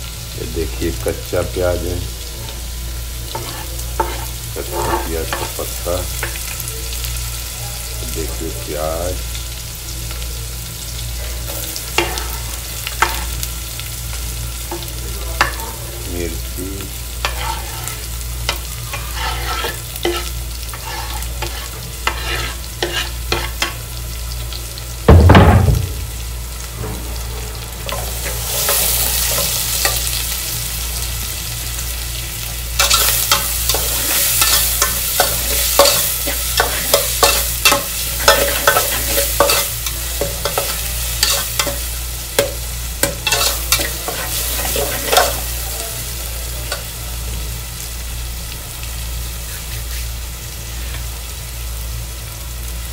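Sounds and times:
vegetables sizzling in hot oil: 0.0 - 52.9
metal spatula scraping pot: 3.3 - 5.6, 17.2 - 23.7, 32.8 - 41.8, 42.4 - 45.4
loud knock: 25.1 - 26.1.

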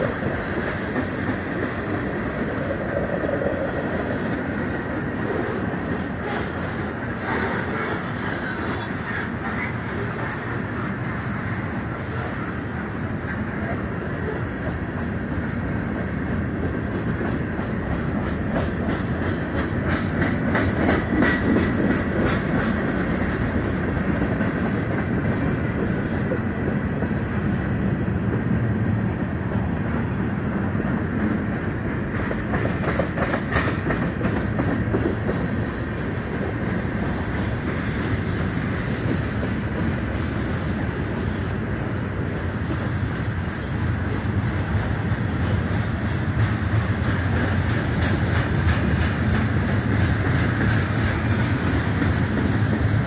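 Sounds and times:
freight train rolling by: 0.0 - 53.0
wheels clickety-clack on rails: 0.0 - 53.0.

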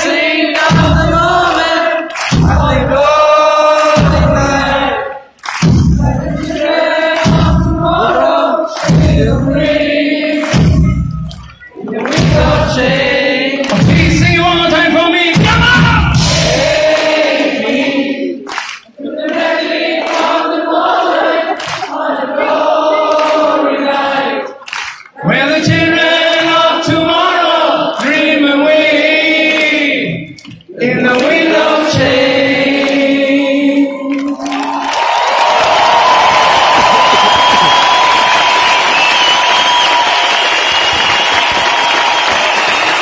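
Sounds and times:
crowd singing along: 0.0 - 39.4.

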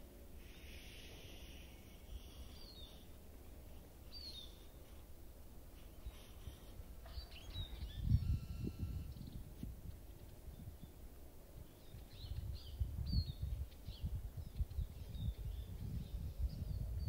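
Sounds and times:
wind rumble on microphone: 6.1 - 17.0.

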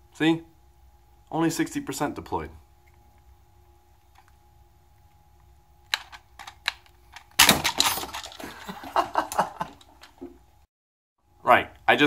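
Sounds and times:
grenade popping open: 5.9 - 8.4.

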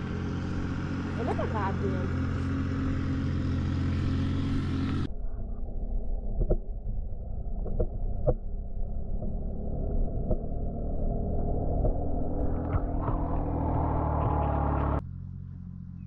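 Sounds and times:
muffled underwater rumble: 4.9 - 15.0.

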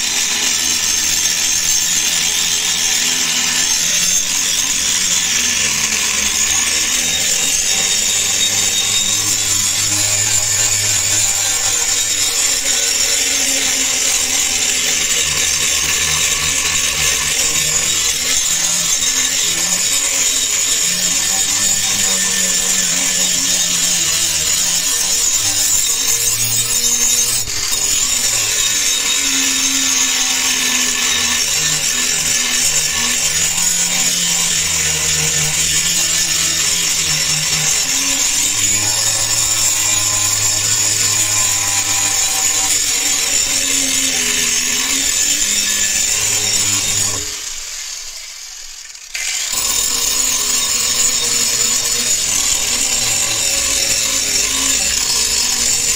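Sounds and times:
angle grinder grinding steel: 0.0 - 55.9.

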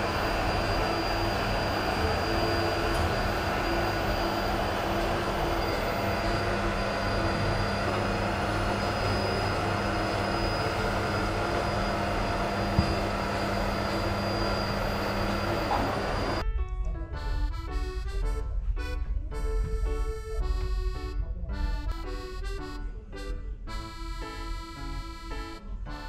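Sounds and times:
vacuum cleaner running: 0.0 - 16.4.

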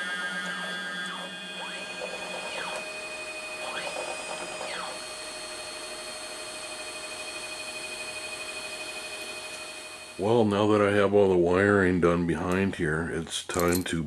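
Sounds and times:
stepper motors whining: 0.0 - 10.5.

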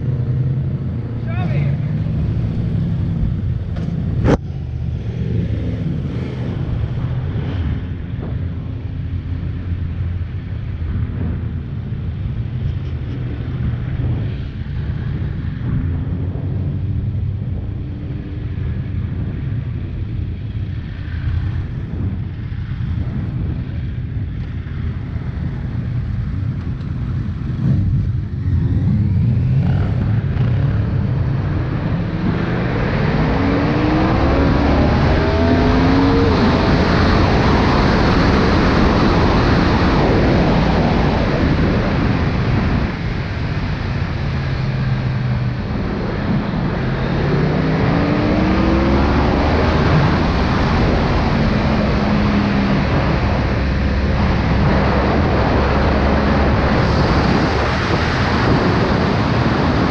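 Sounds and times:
motorcycle engine rumbling: 0.0 - 33.2
wind rush on microphone: 0.0 - 59.9.

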